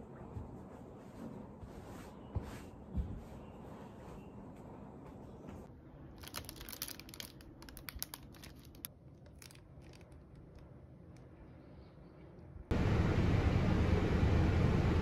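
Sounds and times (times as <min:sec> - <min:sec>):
plastic bag crinkling: 0:06.2 - 0:10.6.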